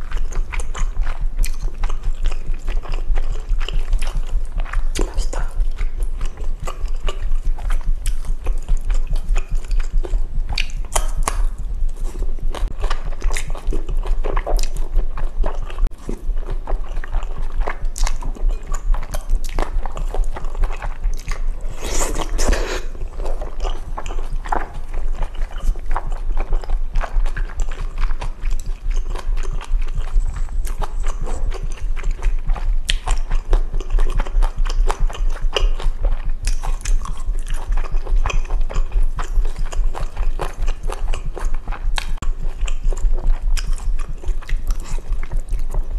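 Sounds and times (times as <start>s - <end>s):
chewing and slurping noodles: 0.0s - 45.9s
low thumping heartbeat: 0.0s - 45.9s.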